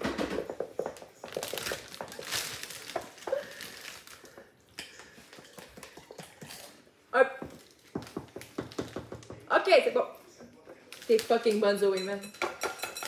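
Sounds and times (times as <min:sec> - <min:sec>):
bag crinkling and rustling: 0:01.2 - 0:04.4.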